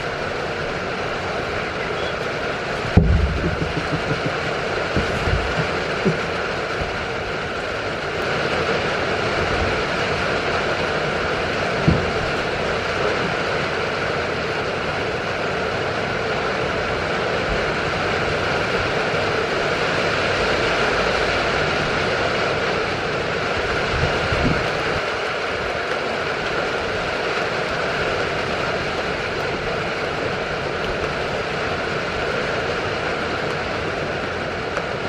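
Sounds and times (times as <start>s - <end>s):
rain hissing: 0.0s - 35.0s
soft low knock: 2.9s - 4.4s.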